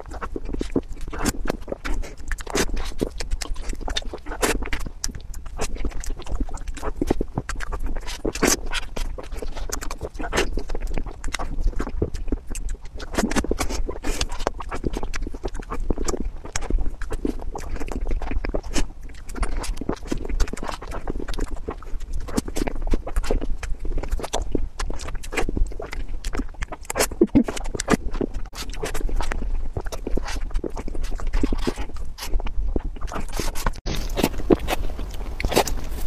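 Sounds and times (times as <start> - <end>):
lip smacking: 0.0 - 36.0
sticky chewing: 0.0 - 36.0.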